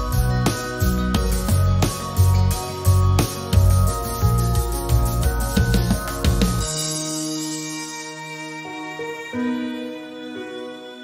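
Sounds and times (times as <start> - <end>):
bass line over held tones: 0.0 - 7.2
light percussion: 0.0 - 8.6.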